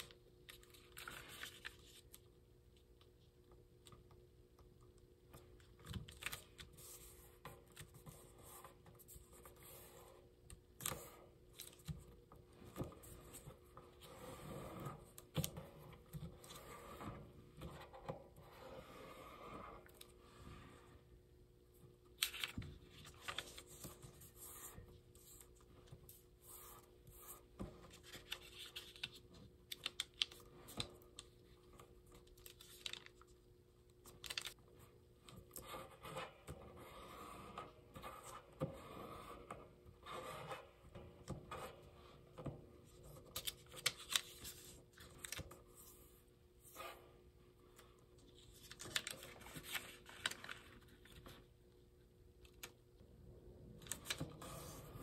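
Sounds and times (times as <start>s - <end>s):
paper crease crackles: 0.0s - 2.3s, 22.1s - 33.4s, 34.0s - 34.6s, 43.0s - 46.1s, 48.3s - 51.5s
paper rustling on table: 22.1s - 30.9s, 48.3s - 51.5s.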